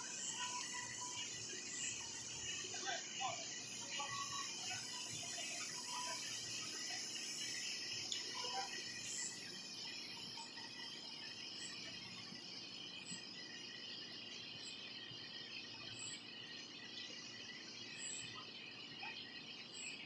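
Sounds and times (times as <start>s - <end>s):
short high insect chirps: 0.0s - 14.0s
insects trilling: 0.0s - 20.0s.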